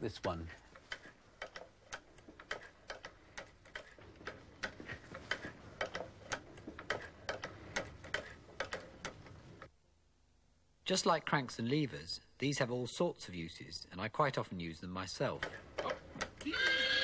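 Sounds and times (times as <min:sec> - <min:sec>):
sewing machine mechanism clicking: 0:00.7 - 0:09.7, 0:15.4 - 0:16.5.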